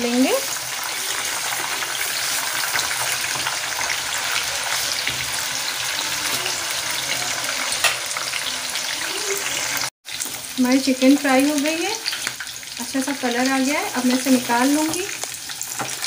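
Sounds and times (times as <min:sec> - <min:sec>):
chicken sizzling in hot oil: 0:00.0 - 0:16.0
spoon turning food in pan: 0:00.4 - 0:07.1, 0:10.1 - 0:16.0.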